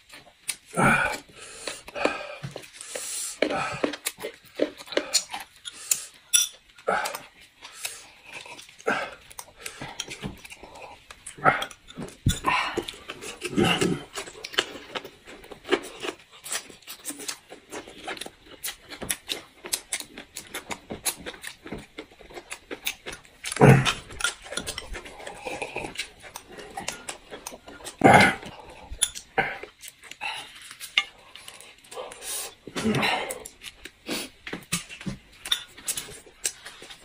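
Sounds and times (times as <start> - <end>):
chewing and slurping food: 0.0 - 37.0
tableware clicks and taps: 6.3 - 6.6.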